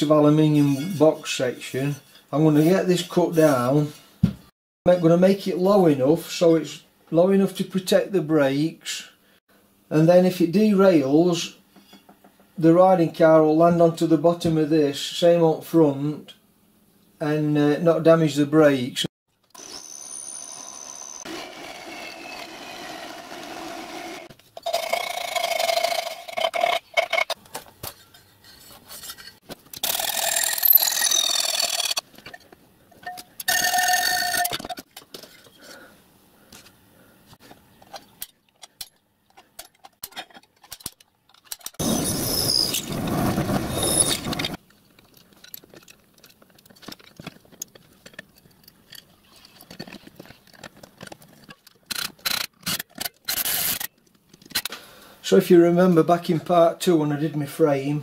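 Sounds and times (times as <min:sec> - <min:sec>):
power tools cutting aluminium: 0:19.5 - 0:26.8, 0:41.8 - 0:44.6.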